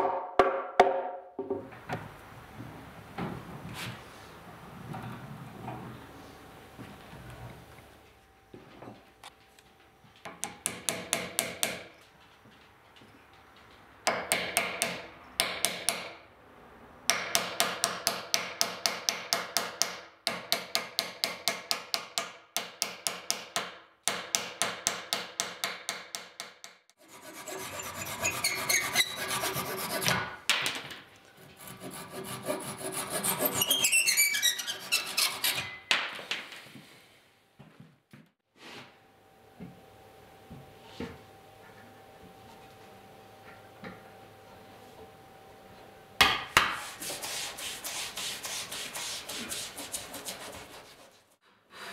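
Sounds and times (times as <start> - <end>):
sawing wood: 27.0 - 30.4, 31.4 - 35.8, 46.6 - 51.9.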